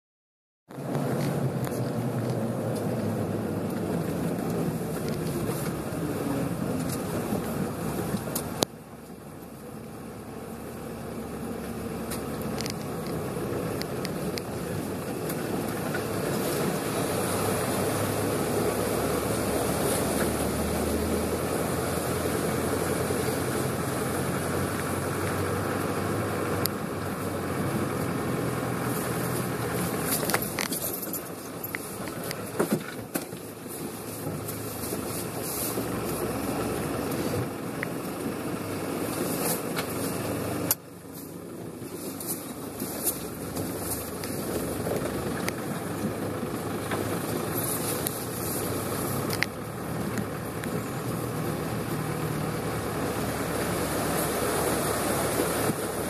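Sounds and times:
vehicle engine running: 0.7 - 56.0
water washing and spraying: 14.8 - 26.0, 50.0 - 56.0.

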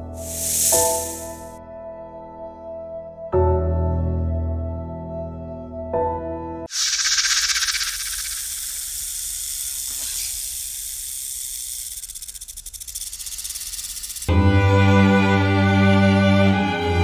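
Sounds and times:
high-pitched snake hiss: 0.0 - 1.6, 6.7 - 14.3
bowed-string music: 14.3 - 17.0.

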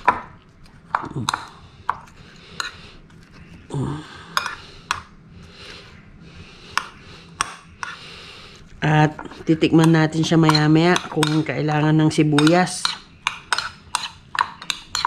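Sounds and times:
metal spoon clinking on glass bowl: 9.8 - 11.6.

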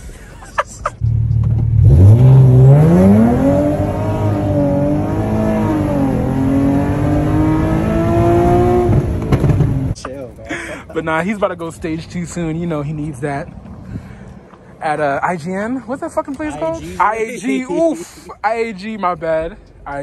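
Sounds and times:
car engine accelerating hard: 1.0 - 10.0.

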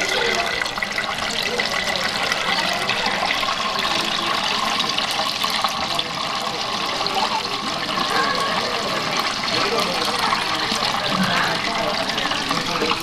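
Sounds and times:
oil sizzling in deep fryer: 0.0 - 13.0.

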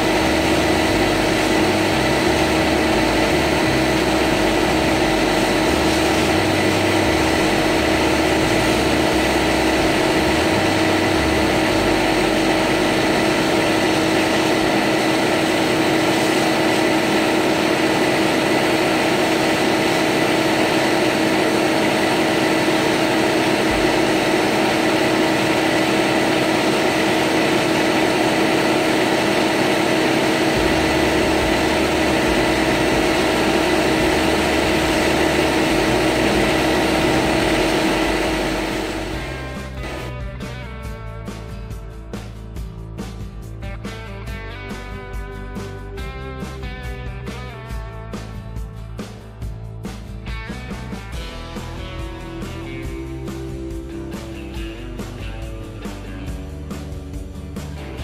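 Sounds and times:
sandblast gun hissing: 0.0 - 40.1
steady hum: 0.0 - 40.3.

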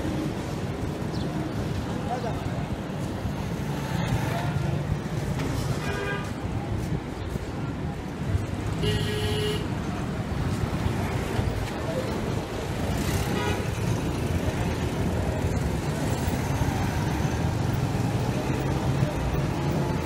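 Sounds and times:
traffic engine rumble: 0.0 - 20.0
vehicle horn toot: 8.8 - 9.7.

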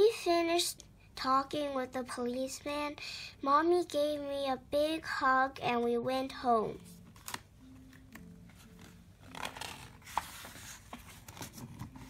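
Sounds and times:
paper page rustling: 6.8 - 12.0.

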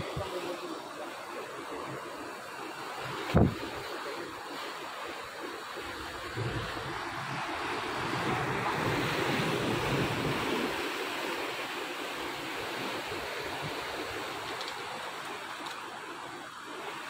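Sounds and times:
wind rumble on microphone: 3.1 - 3.9, 5.8 - 11.2.

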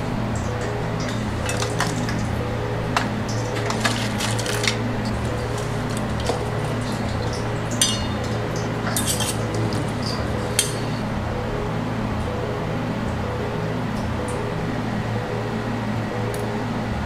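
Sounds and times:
steady low hum: 0.0 - 17.0
utensil clinking on steel bowl: 2.9 - 11.0.

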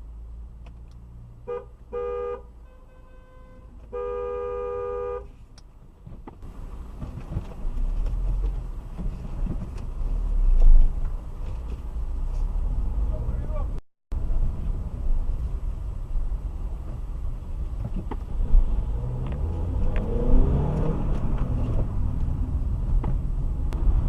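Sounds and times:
car engine and road noise: 0.0 - 24.0
two-tone car horn honking: 1.5 - 5.3.

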